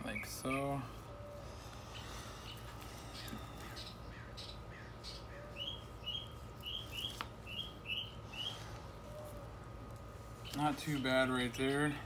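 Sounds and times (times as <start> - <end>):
small bird chirping: 0.0 - 9.5.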